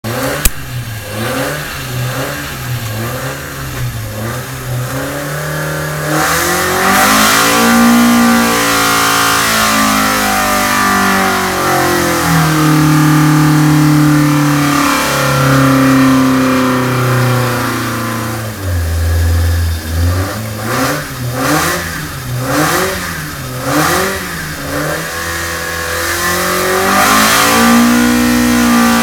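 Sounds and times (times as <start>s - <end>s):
race engine idling and revving: 0.0s - 29.0s
sharp click: 0.2s - 0.7s.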